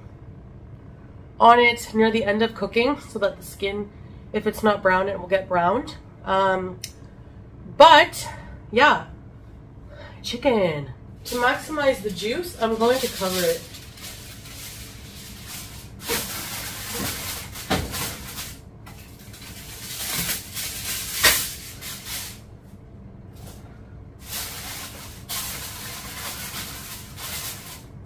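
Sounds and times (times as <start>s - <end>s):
aluminium foil crinkling: 11.3s - 22.4s, 24.2s - 28.0s.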